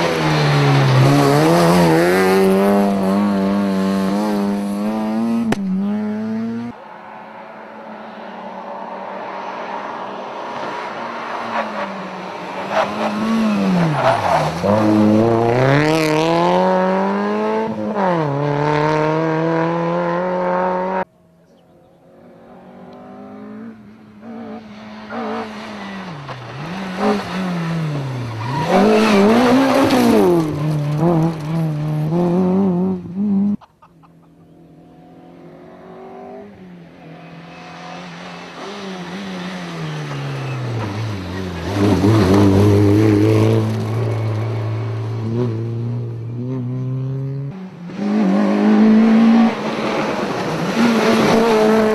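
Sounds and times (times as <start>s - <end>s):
rally car engines revving hard: 0.0s - 6.8s, 10.6s - 21.1s, 22.6s - 33.6s, 35.3s - 51.9s.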